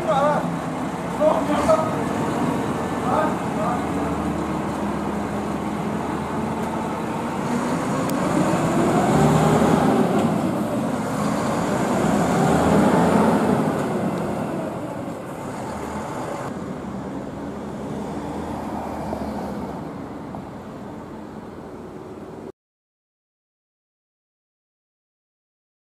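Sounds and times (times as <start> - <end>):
lorry diesel engine revving: 0.0 - 20.0
steady traffic noise: 0.0 - 22.5.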